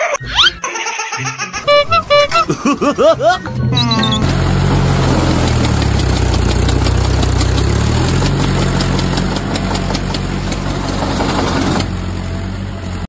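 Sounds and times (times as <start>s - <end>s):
small engine chugging: 4.0s - 12.4s.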